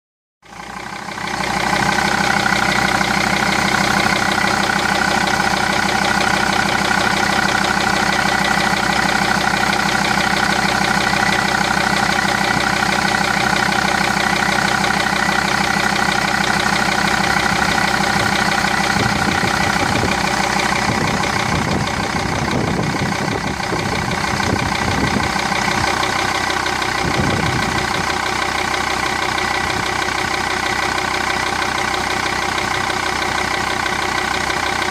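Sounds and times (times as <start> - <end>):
diesel engine idling: 0.4 - 34.9.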